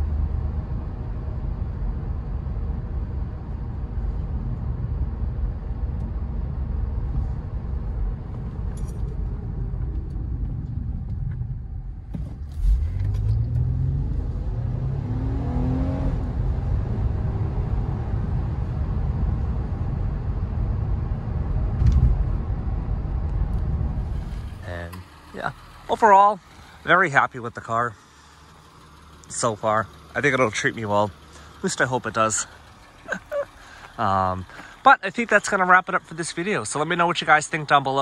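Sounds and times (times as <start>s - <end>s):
car engine accelerating: 0.0s - 38.0s
tyres on the road: 0.0s - 38.0s
brief thump: 12.1s - 13.3s, 21.8s - 22.3s.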